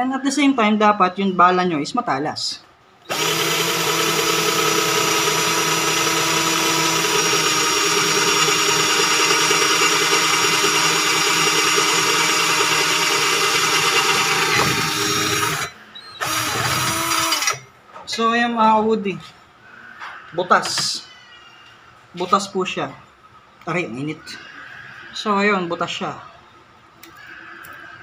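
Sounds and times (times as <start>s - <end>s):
cordless drill boring through steel: 3.1s - 17.6s.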